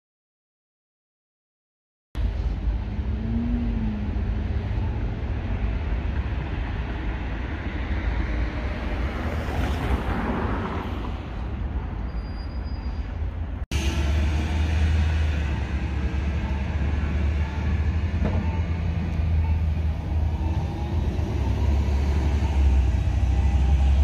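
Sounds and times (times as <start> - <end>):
steady low street rumble: 2.2 - 24.0
vehicle passing: 13.8 - 24.0.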